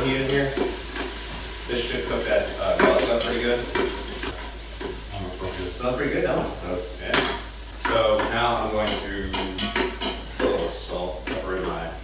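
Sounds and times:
food sizzling: 0:00.0 - 0:12.0.

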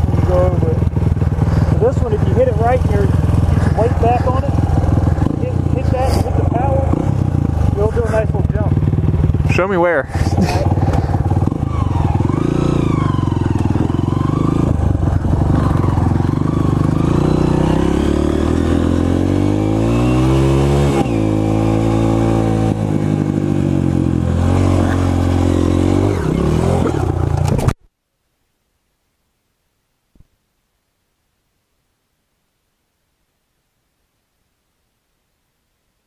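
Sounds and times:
dirt bike engine revving: 0:00.0 - 0:27.7.

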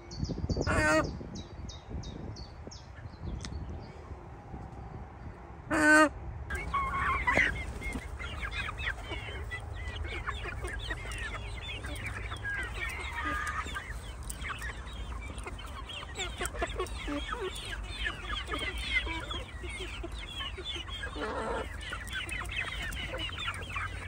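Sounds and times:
chicks peeping and clucking: 0:00.2 - 0:04.8, 0:05.7 - 0:24.0
chicken hoarse call: 0:05.7 - 0:24.0.

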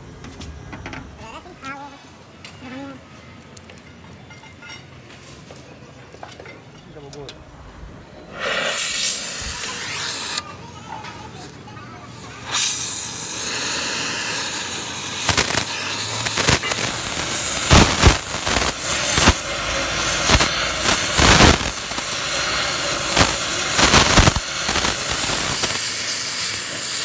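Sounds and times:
torch flame hissing: 0:08.0 - 0:10.5, 0:11.4 - 0:27.0
pops and cracks of heated metal: 0:12.5 - 0:27.0.

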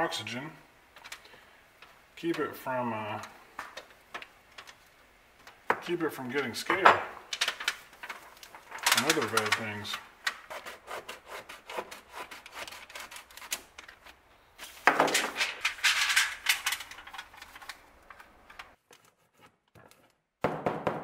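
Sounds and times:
metal foil crinkling and crackling: 0:07.2 - 0:10.5, 0:12.4 - 0:19.0.

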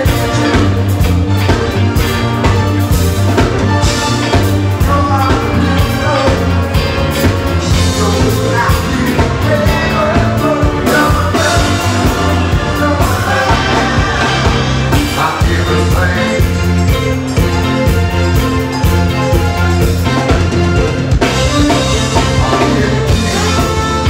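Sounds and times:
funk band playing: 0:00.0 - 0:24.0
person singing lead vocal: 0:04.2 - 0:17.2, 0:21.5 - 0:24.0.

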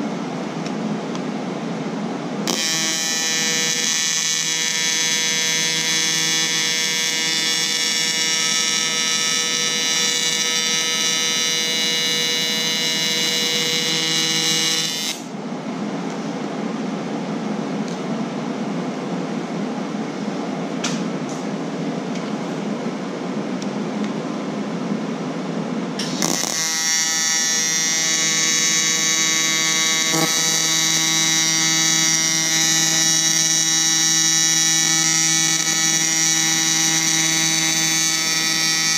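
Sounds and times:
welding arc buzzing: 0:02.4 - 0:15.3, 0:26.0 - 0:38.9.

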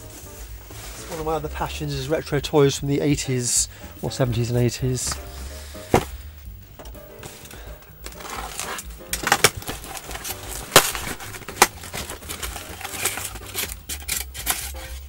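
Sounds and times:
cardboard scraping and rustling: 0:00.0 - 0:01.7, 0:04.9 - 0:06.4, 0:07.2 - 0:15.0
blade slitting tape: 0:08.2 - 0:15.0.

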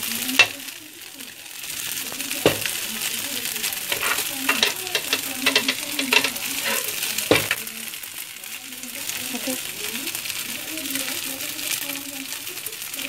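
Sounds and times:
noodles sizzling in wok: 0:00.0 - 0:13.0
spatula scraping metal wok: 0:00.3 - 0:00.7, 0:02.4 - 0:02.8, 0:03.7 - 0:07.7.

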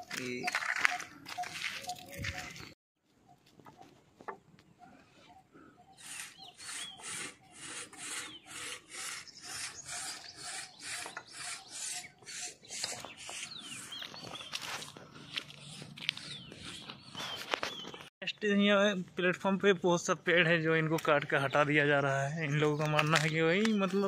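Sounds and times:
hand saw rasping through wood: 0:06.0 - 0:13.9.

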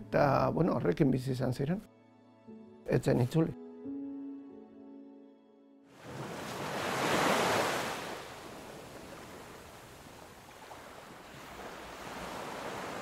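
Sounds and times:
held music chord: 0:01.9 - 0:05.9
small waves washing over rocks: 0:06.0 - 0:13.0.

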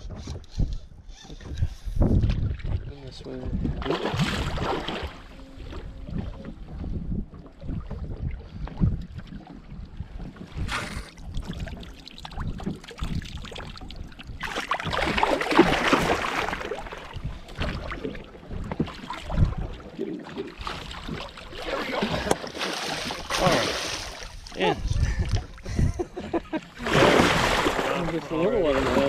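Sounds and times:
water lapping at boat: 0:00.0 - 0:29.0
wind buffeting microphone: 0:00.0 - 0:29.0
fish splashing at surface: 0:26.8 - 0:28.1.

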